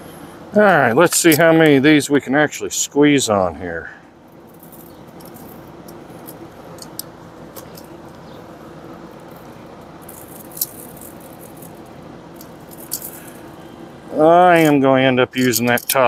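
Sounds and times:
steady low hum: 0.0 - 16.0
metal tongs clinking on grate: 15.4 - 16.0.

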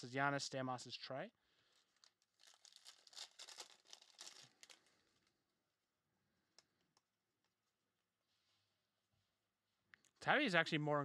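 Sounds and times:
foil wrapper crinkling and tearing: 1.7 - 5.3.

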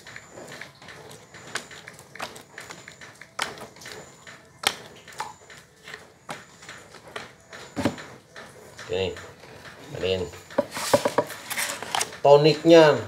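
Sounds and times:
cards tapping on wooden bench: 1.3 - 8.2, 10.4 - 11.6.

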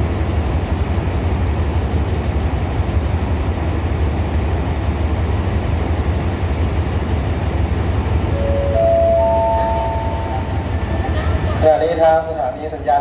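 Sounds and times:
diesel locomotive idling: 0.0 - 13.0
public-address chime: 8.3 - 10.8.

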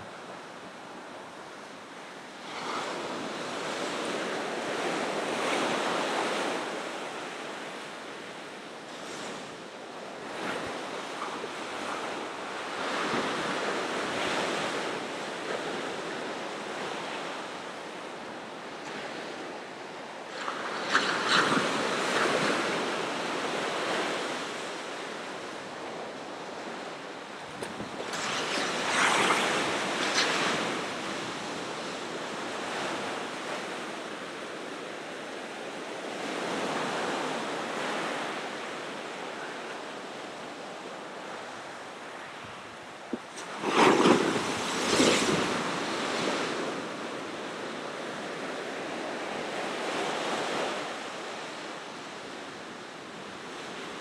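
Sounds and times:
ocean waves breaking: 19.9 - 34.2, 43.1 - 50.8.

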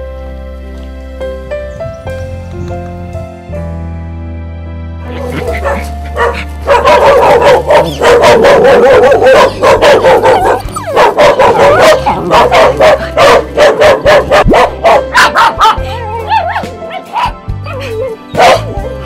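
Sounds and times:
small dog whining: 10.4 - 11.0.

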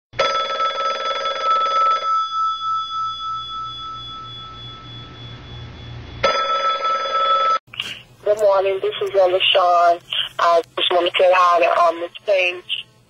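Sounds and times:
telephone ringing: 0.2 - 7.6
low hum: 3.0 - 6.3.

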